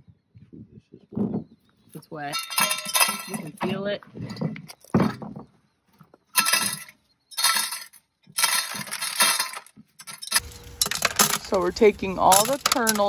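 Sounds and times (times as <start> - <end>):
corn kernels clattering into metal can: 6.4 - 13.0.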